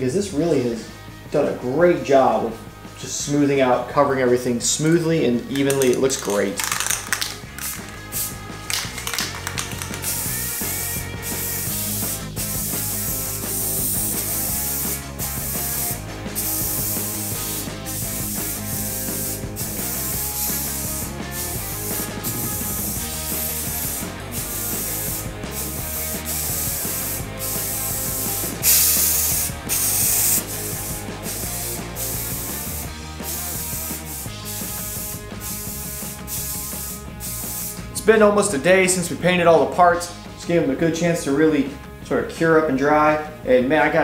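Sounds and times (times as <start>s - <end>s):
background music: 0.0s - 44.0s
spray-paint can hissing: 5.5s - 37.9s.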